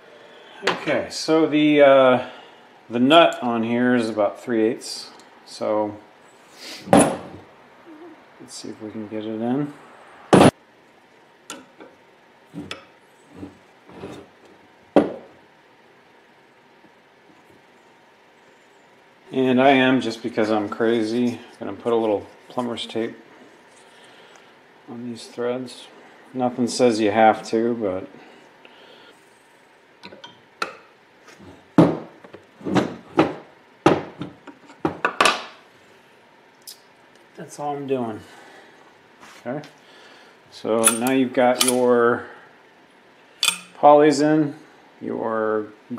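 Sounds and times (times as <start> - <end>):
metal tools clicking and knocking: 40.8 - 41.8, 43.4 - 43.8.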